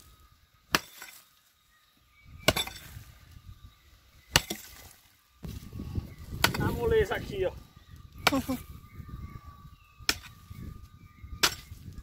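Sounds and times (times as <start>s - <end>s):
rattle of loosened earth: 0.0s - 12.0s
digging tool striking stony soil: 0.6s - 1.3s, 2.3s - 3.1s, 4.2s - 5.7s, 6.3s - 7.2s, 8.1s - 8.7s, 10.0s - 10.5s, 11.2s - 12.0s.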